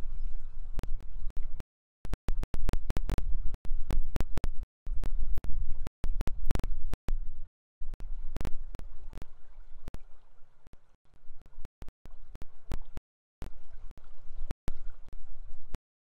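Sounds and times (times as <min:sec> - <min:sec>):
faint water wash: 0:07.8 - 0:15.8.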